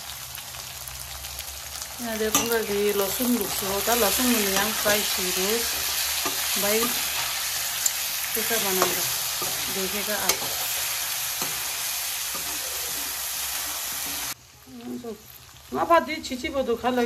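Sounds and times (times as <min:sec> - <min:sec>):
food sizzling in oil: 0:00.0 - 0:17.0
metal spoon scraping a wok: 0:02.3 - 0:14.4.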